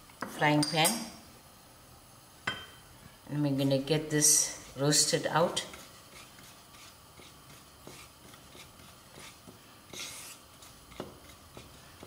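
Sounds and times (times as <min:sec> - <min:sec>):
spatula scraping seeds in pan: 0:04.2 - 0:12.0.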